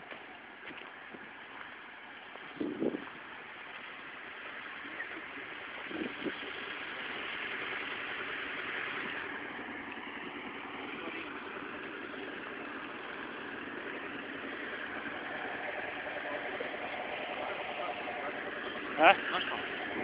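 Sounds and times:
engine running steadily: 0:00.0 - 0:20.0.

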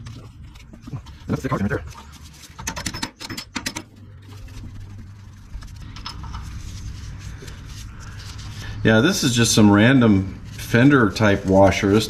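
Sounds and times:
steady low hum: 0:03.8 - 0:12.0.

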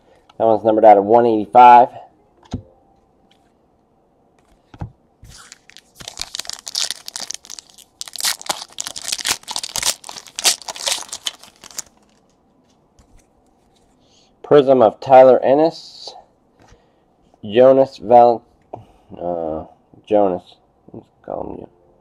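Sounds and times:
wrapper tearing and crinkling: 0:05.3 - 0:12.2.

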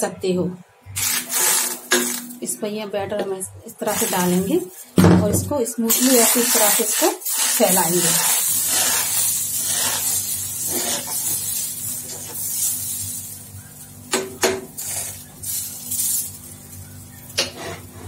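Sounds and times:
batter hissing on hot griddle: 0:01.0 - 0:01.9, 0:03.9 - 0:04.9, 0:05.9 - 0:14.0, 0:14.8 - 0:18.0.

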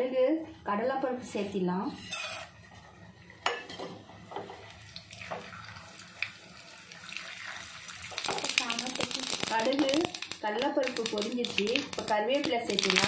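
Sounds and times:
oil sizzling in a pan: 0:01.9 - 0:13.0
mustard seeds popping: 0:08.1 - 0:13.0.

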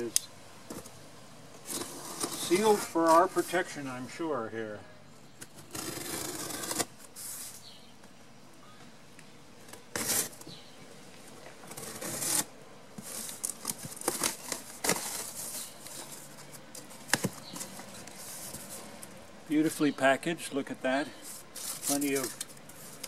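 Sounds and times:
tape and cardboard ripping: 0:01.6 - 0:03.6, 0:05.4 - 0:07.6, 0:09.6 - 0:10.6, 0:11.6 - 0:19.1, 0:21.3 - 0:23.0
cardboard flaps rustling: 0:11.1 - 0:19.0.

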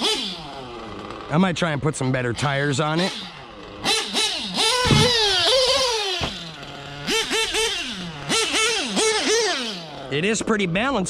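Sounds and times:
small nitro engine revving: 0:00.0 - 0:11.0
thud: 0:04.8 - 0:05.3, 0:06.2 - 0:06.5.

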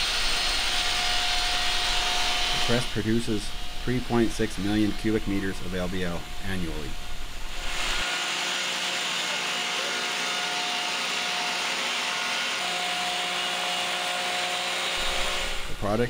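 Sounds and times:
steady hum: 0:00.0 - 0:08.1.

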